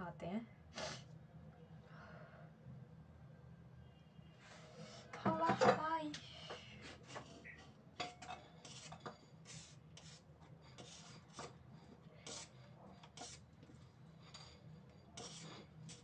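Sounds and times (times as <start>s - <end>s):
faint scraping and rubbing: 6.4s - 16.0s.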